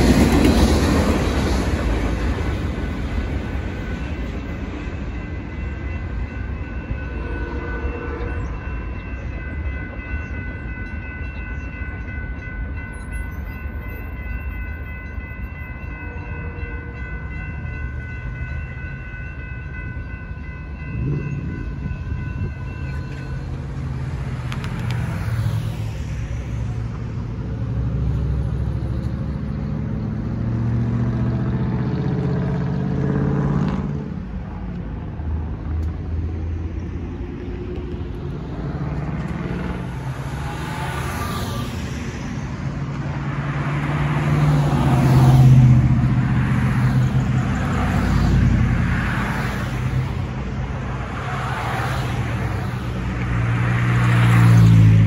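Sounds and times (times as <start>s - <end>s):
railroad crossing bells ringing: 0.0s - 53.3s
cars driving past: 20.1s - 55.0s.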